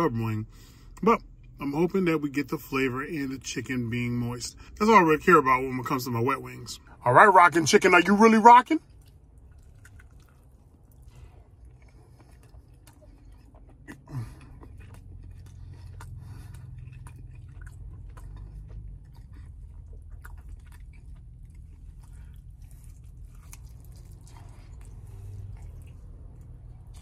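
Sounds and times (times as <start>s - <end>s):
steady low hum: 0.0s - 27.0s
man chewing wet mouth sounds: 8.8s - 27.0s.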